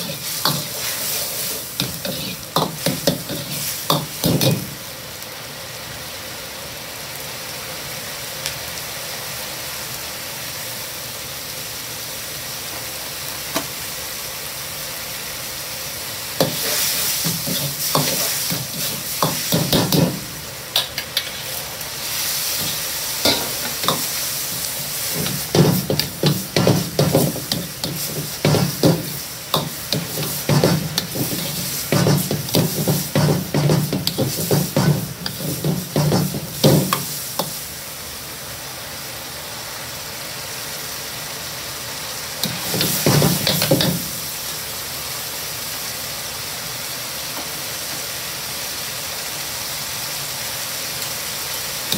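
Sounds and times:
sauce sizzling in a wok: 0:00.0 - 0:51.9
metal ladle scraping and knocking wok: 0:16.4 - 0:21.6, 0:22.6 - 0:37.6, 0:42.4 - 0:44.1.

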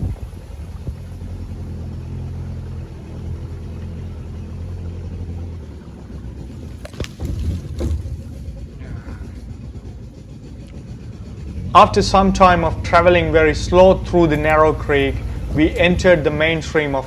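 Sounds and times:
boat motor running slowly: 0:00.0 - 0:17.0
sharp knocks: 0:06.8 - 0:08.6.

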